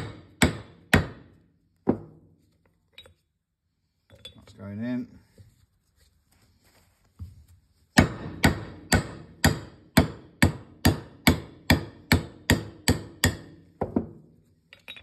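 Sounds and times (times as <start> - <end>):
hammer striking metal: 8.0 - 13.6.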